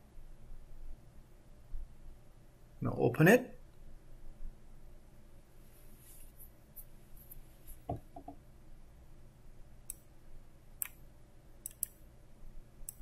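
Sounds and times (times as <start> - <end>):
computer mouse clicks: 10.8 - 11.0, 11.6 - 12.0.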